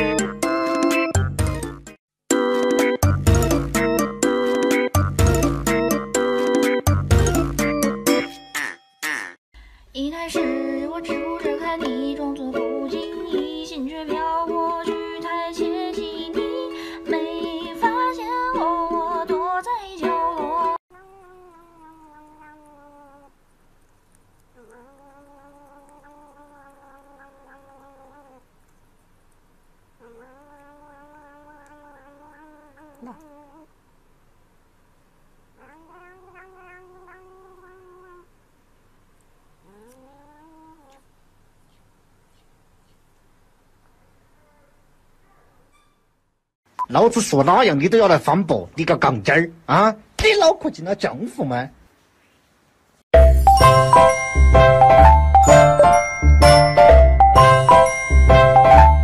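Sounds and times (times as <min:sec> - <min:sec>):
background music: 0:00.0 - 0:08.3, 0:53.2 - 0:59.0
cat meowing: 0:20.9 - 0:23.3, 0:24.6 - 0:28.4, 0:30.0 - 0:33.7, 0:35.6 - 0:38.3, 0:39.7 - 0:41.1.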